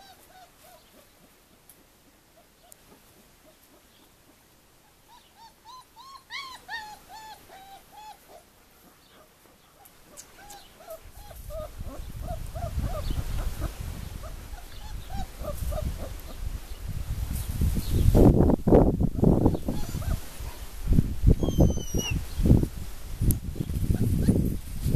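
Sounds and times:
puppies whimpering: 0:00.0 - 0:01.0, 0:04.9 - 0:08.5, 0:09.2 - 0:16.1, 0:19.6 - 0:20.2, 0:21.3 - 0:22.2.

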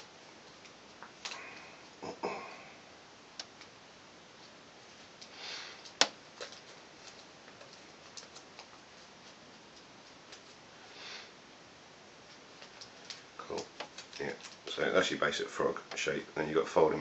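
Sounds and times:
soft paper rustle: 0:04.4 - 0:10.7, 0:12.2 - 0:15.2
paper folding crinkles: 0:05.8 - 0:10.7, 0:12.2 - 0:15.2.

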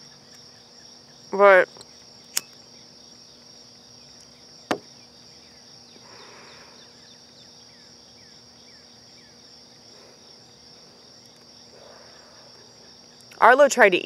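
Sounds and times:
crickets chorus: 0:00.0 - 0:14.0
soft breath: 0:06.0 - 0:07.0, 0:11.7 - 0:12.9.

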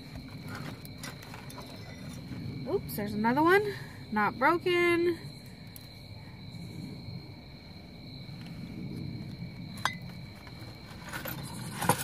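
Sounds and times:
crickets chirring: 0:00.0 - 0:12.0.

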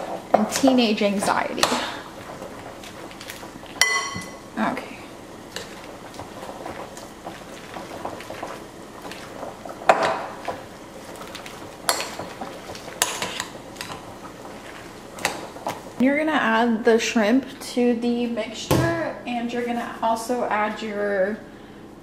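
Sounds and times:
wet stirring noise: 0:00.0 - 0:16.6.

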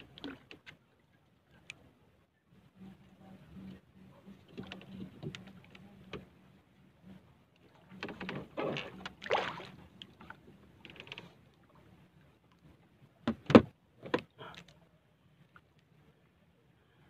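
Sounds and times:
knocks and scraping on wooden boat: 0:02.8 - 0:06.4, 0:07.1 - 0:11.4, 0:13.2 - 0:14.4
splashy swishes: 0:08.6 - 0:09.8.

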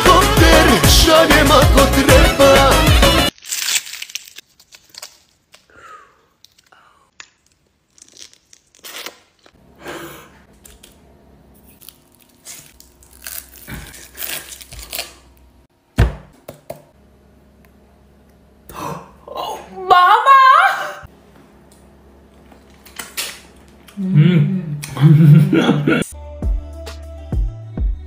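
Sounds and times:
rustling and tearing pineapple leaves: 0:03.3 - 0:05.7, 0:07.4 - 0:09.6, 0:11.6 - 0:15.4.

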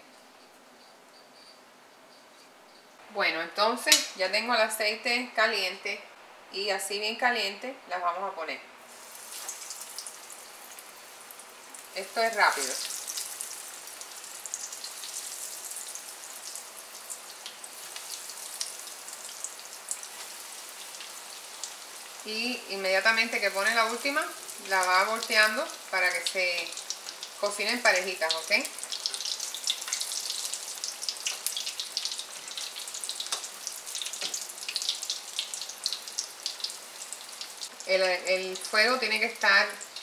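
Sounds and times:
food deep-frying in oil: 0:08.9 - 0:40.0.

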